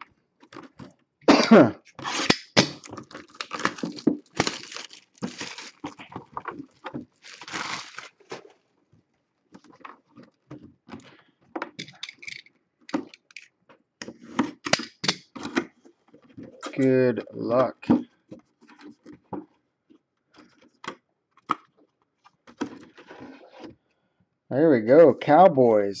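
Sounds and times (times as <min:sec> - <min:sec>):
shrink wrap crinkling and tearing: 0:02.0 - 0:08.6.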